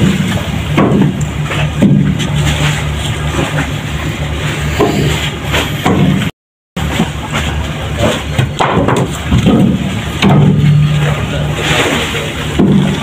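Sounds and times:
low machine hum: 0.0 - 13.0
wooden planks knocking: 8.4 - 10.7, 12.6 - 13.0.

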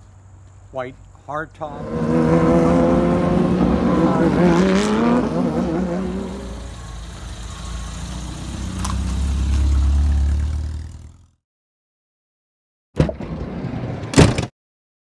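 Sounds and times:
car engine running: 1.7 - 11.4.

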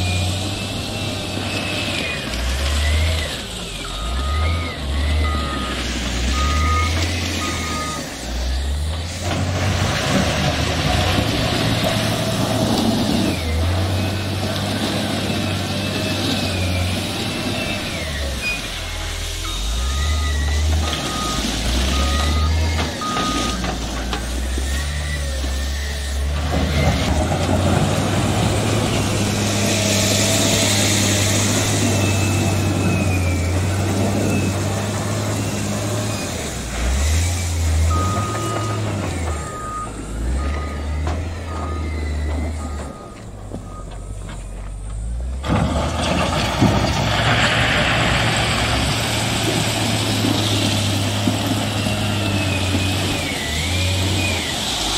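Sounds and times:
diesel engine running: 0.0 - 54.9
reversing alarm beeping: 2.7 - 8.9, 16.9 - 23.7, 37.1 - 44.8.

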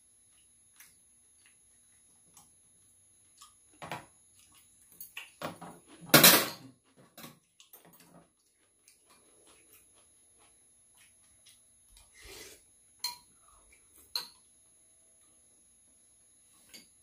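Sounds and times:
utensils clattering on metal tray: 6.1 - 7.4
utensils clinking against bowls: 13.0 - 13.4, 14.0 - 14.5.

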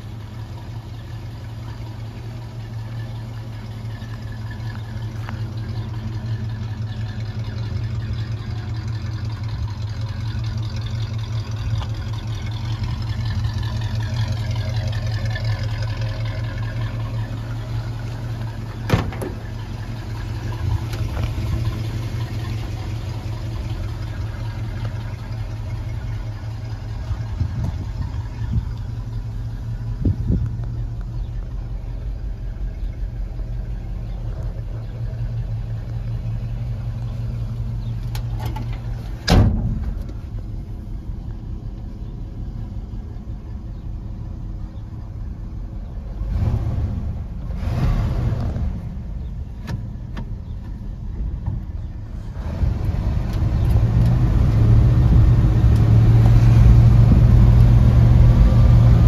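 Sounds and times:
pickup engine idling: 0.0 - 59.0.

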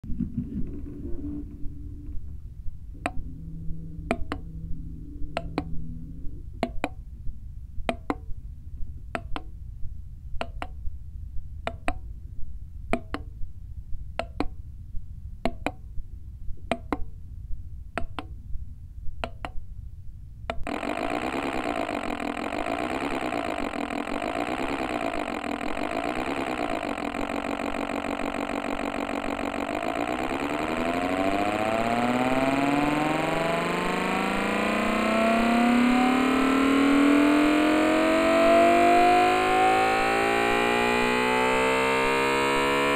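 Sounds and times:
engine idling with warbling beat: 0.1 - 8.0, 20.6 - 42.9
sharp ticks: 7.8 - 8.3, 20.5 - 42.9.

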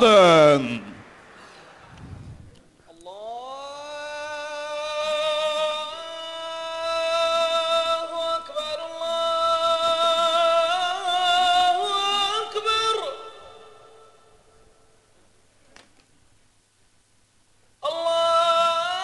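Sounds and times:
person singing chant-like melody: 0.0 - 14.0.

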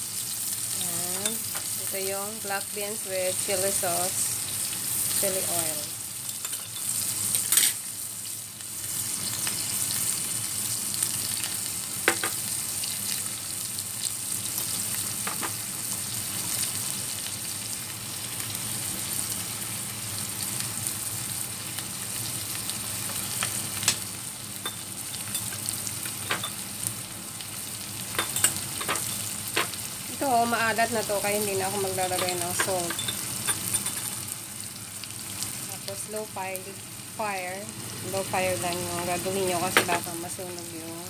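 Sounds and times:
fish sizzling in oil: 0.0 - 41.0.

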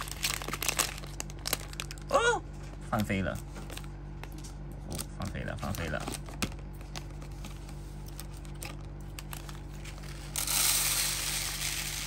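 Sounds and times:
plastic pouch crinkling: 0.0 - 2.1
steady low hum: 0.0 - 12.0
rice pouring out: 10.3 - 12.0.

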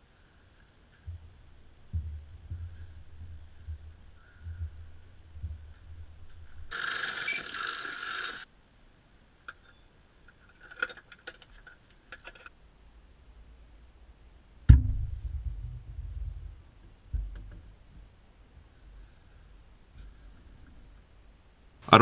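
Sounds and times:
loud knock: 14.7 - 16.0.

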